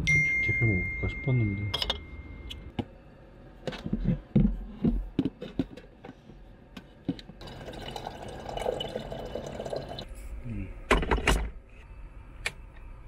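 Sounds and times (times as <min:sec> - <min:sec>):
water running into kettle: 0:07.4 - 0:10.1.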